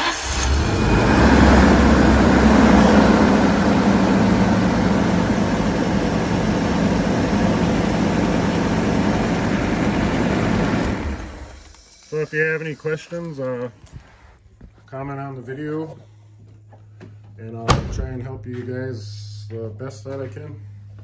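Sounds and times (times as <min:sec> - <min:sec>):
van engine idling: 0:00.0 - 0:11.7.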